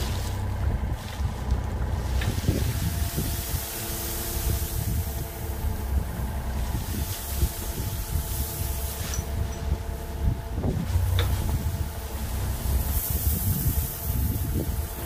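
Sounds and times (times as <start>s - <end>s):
mini excavator engine running: 0.0s - 15.0s
gravel pouring out of a bag: 10.9s - 15.0s.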